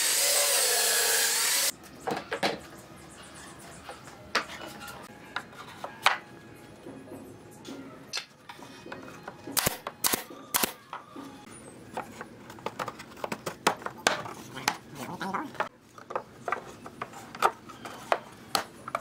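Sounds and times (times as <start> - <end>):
pneumatic nail gun firing: 9.6 - 10.8.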